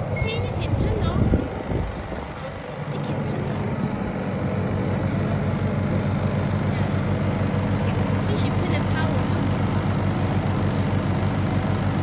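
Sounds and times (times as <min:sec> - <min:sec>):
generator engine humming: 0:00.0 - 0:12.0.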